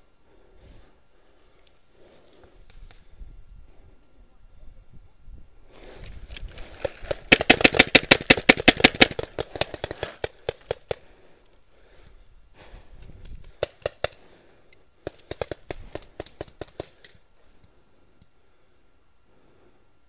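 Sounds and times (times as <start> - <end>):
paintball marker shots: 6.8 - 11.0, 13.2 - 14.2, 15.0 - 17.2.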